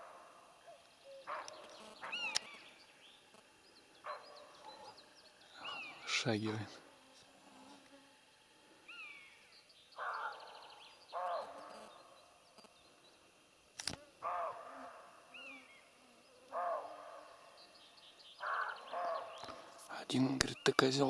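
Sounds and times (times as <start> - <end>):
deer barking: 0.0 - 2.5, 4.0 - 5.0, 10.0 - 11.9, 14.2 - 15.6, 16.4 - 17.4, 18.4 - 19.8
bird whistles: 1.3 - 2.7
sharp click: 13.8 - 14.0.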